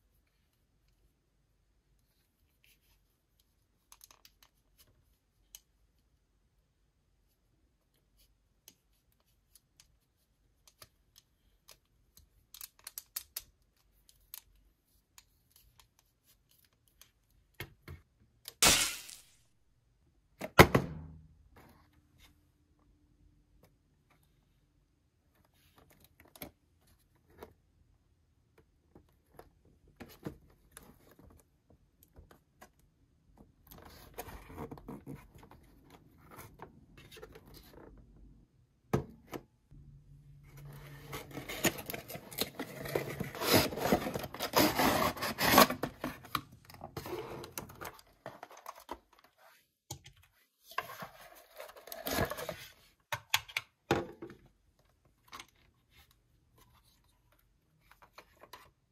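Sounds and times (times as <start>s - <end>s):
hands rustling toy packaging: 40.9s - 49.4s.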